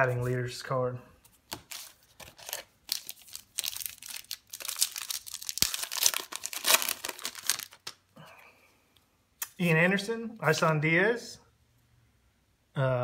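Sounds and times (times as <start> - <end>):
wrapper ripping and crinkling: 1.5 - 8.0.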